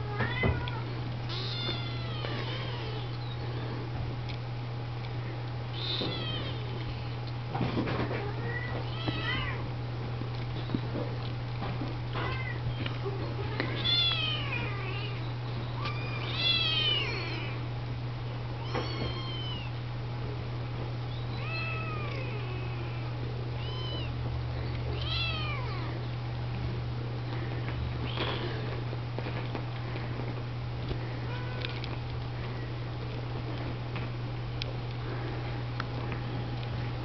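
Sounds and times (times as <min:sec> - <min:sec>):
kittens mewing: 0:00.0 - 0:04.0, 0:05.7 - 0:07.1, 0:12.1 - 0:17.7, 0:18.6 - 0:19.8, 0:21.2 - 0:26.1, 0:27.4 - 0:28.8, 0:30.9 - 0:32.6.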